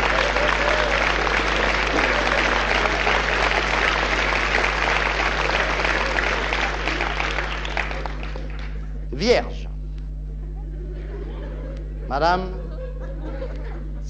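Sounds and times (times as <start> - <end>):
audience applauding: 0.0 - 9.4
low steady hum: 0.0 - 14.0.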